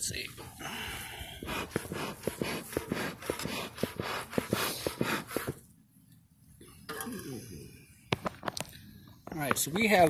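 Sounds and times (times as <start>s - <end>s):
bee smoker bellows puffing: 0.8s - 5.6s.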